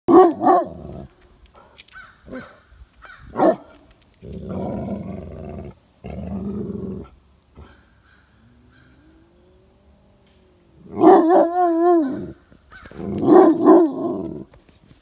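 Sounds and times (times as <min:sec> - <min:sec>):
dog barking: 0:00.1 - 0:00.8, 0:03.4 - 0:03.7, 0:11.0 - 0:12.3, 0:13.2 - 0:14.0
dog growling: 0:04.2 - 0:07.7.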